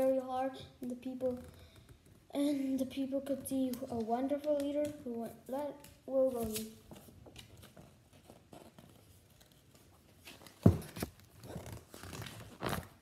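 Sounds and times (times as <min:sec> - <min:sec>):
paper pages rustling: 0:05.8 - 0:13.0.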